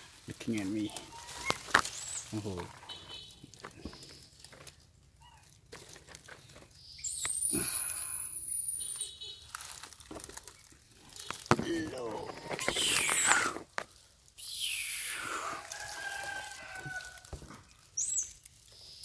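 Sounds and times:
leaves and twigs rustling: 0.0s - 19.0s
high-pitched animal calls: 0.9s - 3.4s, 12.2s - 13.6s, 14.4s - 17.1s.

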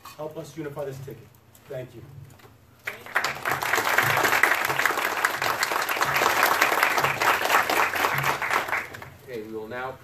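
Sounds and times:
audience applauding: 2.8s - 9.2s.

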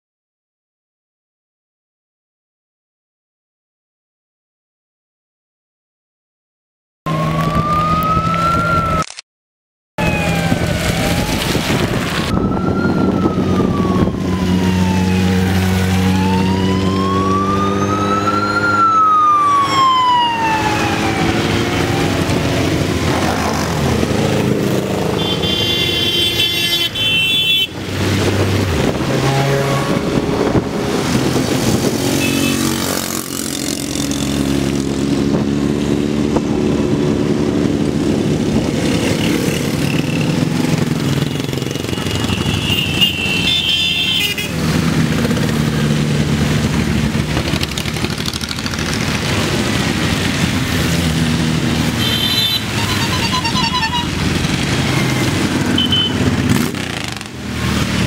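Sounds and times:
police siren wailing: 7.1s - 9.0s, 10.0s - 32.8s, 51.9s - 56.3s
tyre noise on wet road: 10.0s - 18.9s, 44.3s - 58.0s
motorcycle engines: 10.0s - 58.0s
horn sounding: 25.1s - 27.8s, 29.1s - 30.3s, 32.1s - 32.9s, 41.4s - 44.6s, 52.0s - 54.2s, 55.7s - 56.3s.

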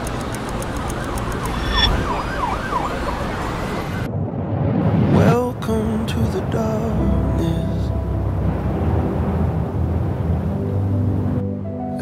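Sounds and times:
city traffic: 0.0s - 4.1s
siren wailing: 0.8s - 4.1s
rising swept tone: 1.2s - 3.7s.

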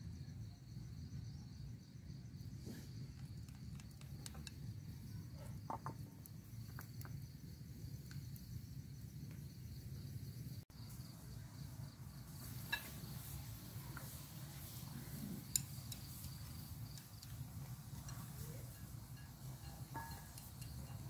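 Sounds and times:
crickets chirping: 0.0s - 21.0s
chopsticks tapping plate: 18.0s - 21.0s.

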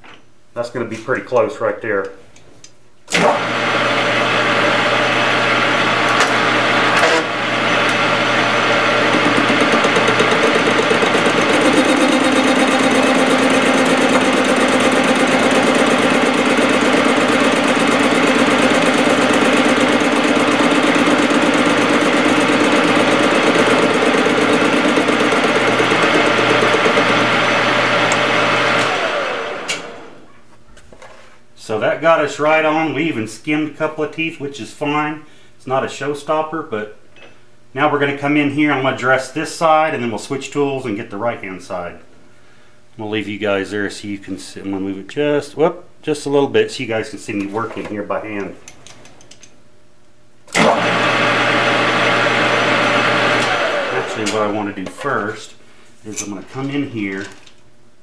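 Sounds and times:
lathe tool cutting metal: 3.1s - 29.9s
metal lathe motor hum: 3.1s - 30.2s, 50.5s - 54.4s.

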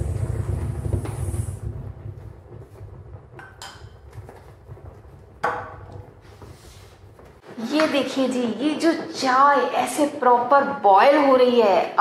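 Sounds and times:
milk tea bubbling in clay pot: 0.0s - 7.4s.

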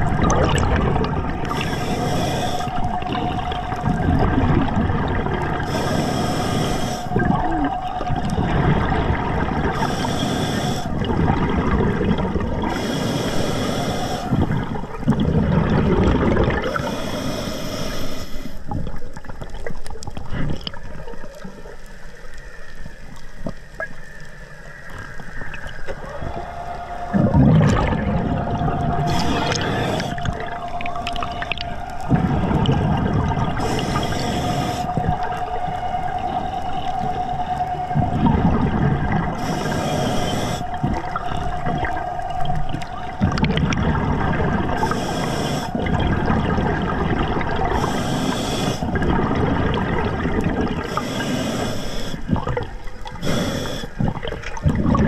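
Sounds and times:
diver exhaling with bubbles: 0.0s - 21.0s, 25.6s - 55.0s
diver inhaling: 1.4s - 3.0s, 5.6s - 7.8s, 9.6s - 11.0s, 12.6s - 14.8s, 16.6s - 18.7s, 25.9s - 37.6s, 39.3s - 41.9s, 44.8s - 46.0s, 47.6s - 49.0s, 50.8s - 52.3s, 53.2s - 54.1s
steady hum: 25.9s - 52.3s.

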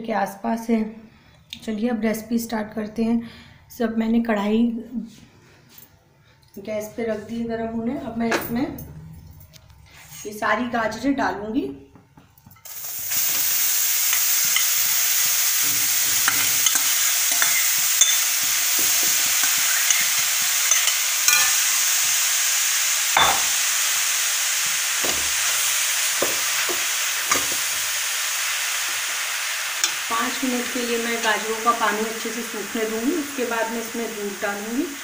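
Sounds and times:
carrots sizzling in a pan: 12.6s - 35.0s.

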